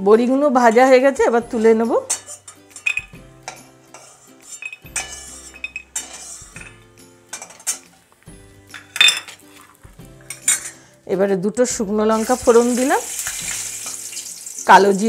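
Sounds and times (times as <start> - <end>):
metal spatula scraping metal pan: 0.7 - 8.0, 8.8 - 11.0.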